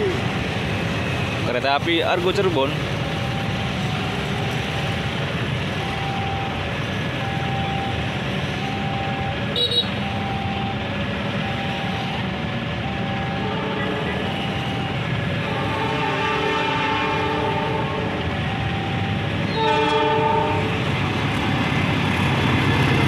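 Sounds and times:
low rumble of traffic: 0:00.0 - 0:23.0
faint repeating beep: 0:03.1 - 0:04.9, 0:05.8 - 0:06.6, 0:07.2 - 0:08.0, 0:08.6 - 0:10.8, 0:11.4 - 0:12.2.

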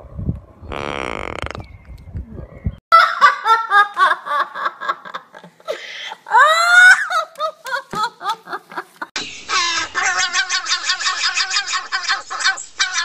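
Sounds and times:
high-pitched laughter: 0:06.1 - 0:13.0.

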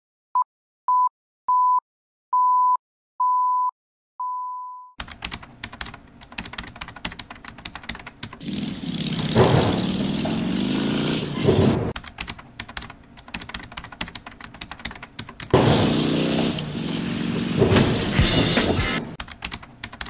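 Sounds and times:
keyboard typing clicks: 0:05.0 - 0:08.4, 0:12.0 - 0:15.6, 0:19.2 - 0:20.0.

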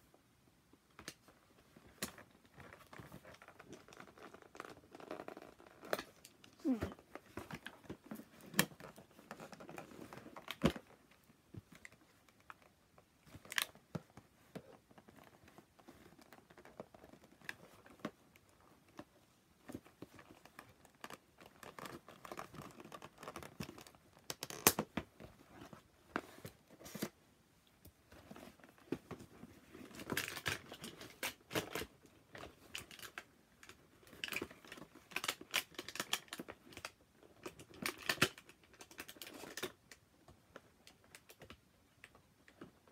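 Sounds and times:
cardboard packaging crinkling and tearing: 0:29.8 - 0:39.8.

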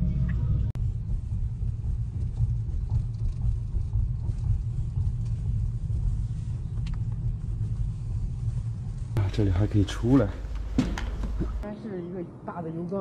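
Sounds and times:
road and tyre rumble in car: 0:00.0 - 0:10.2.

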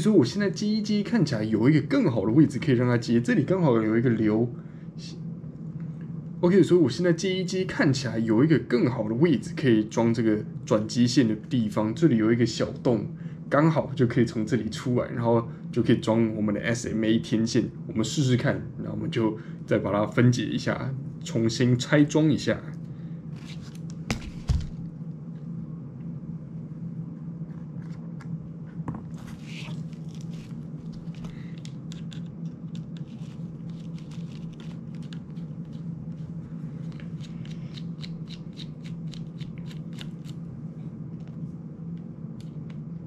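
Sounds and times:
steady low hum: 0:00.0 - 0:43.0.

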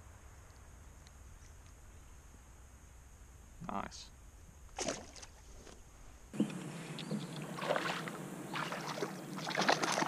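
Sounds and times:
water splashing against kayak: 0:07.0 - 0:10.0.

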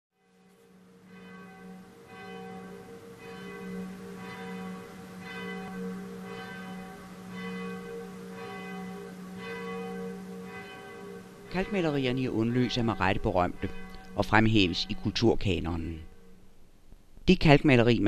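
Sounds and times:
church bell ringing: 0:00.2 - 0:16.7.

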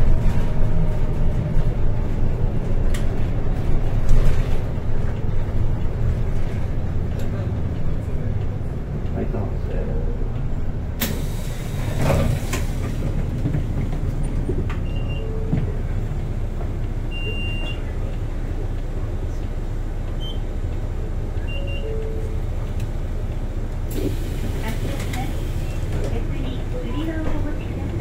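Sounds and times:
bus engine rumble: 0:00.0 - 0:28.0
short electronic beeps: 0:17.1 - 0:17.9, 0:21.4 - 0:22.4.

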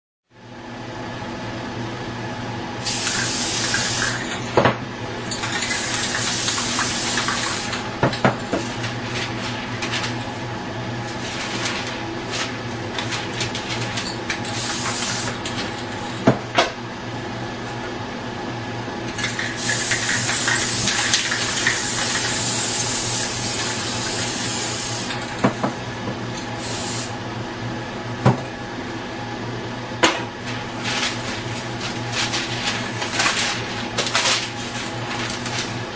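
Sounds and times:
spray-paint cans hissing: 0:02.8 - 0:04.4, 0:05.3 - 0:07.8, 0:14.5 - 0:15.4, 0:19.2 - 0:25.2, 0:26.6 - 0:27.1.

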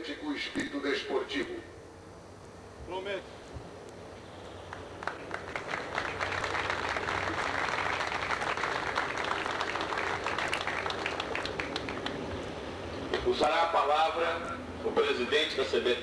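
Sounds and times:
audience applauding: 0:04.7 - 0:12.4.

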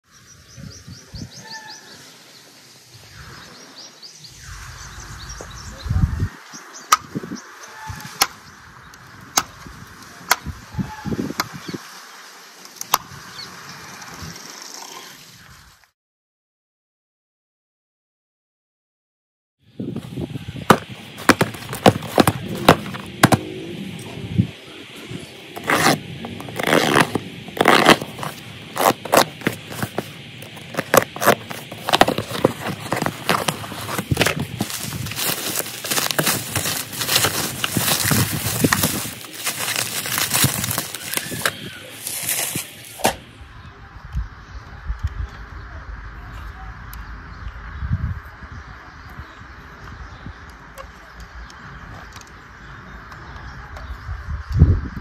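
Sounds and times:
handling noise: 0:20.0 - 0:24.2, 0:25.5 - 0:43.3
cardboard box scraping and tapping: 0:20.7 - 0:23.5, 0:25.6 - 0:42.6
knife slitting packing tape: 0:25.6 - 0:42.7.

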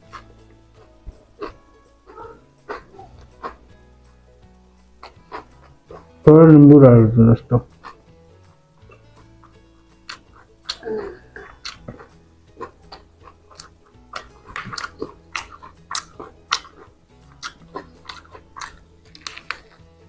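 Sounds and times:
chewing and biting chicken: 0:00.0 - 0:03.7, 0:05.0 - 0:06.2, 0:08.9 - 0:20.0
fried meat torn by hand: 0:11.6 - 0:19.8.

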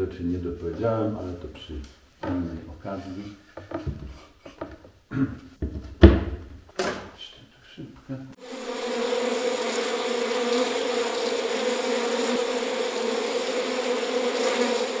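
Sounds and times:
honeybees buzzing: 0:08.4 - 0:15.0.

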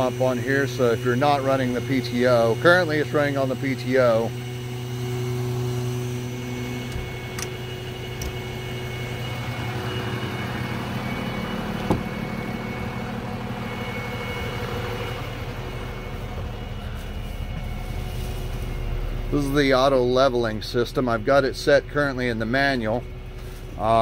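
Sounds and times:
faint high whine: 0:00.0 - 0:24.0
truck engine idling: 0:00.0 - 0:24.0.

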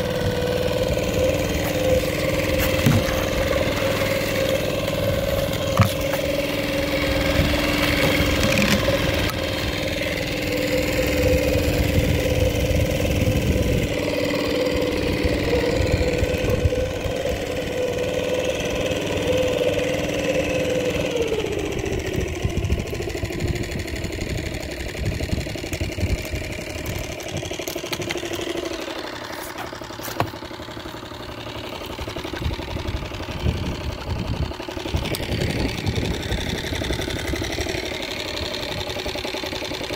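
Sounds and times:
small boat motor running: 0:00.0 - 0:39.9
wind on microphone: 0:11.2 - 0:14.0.

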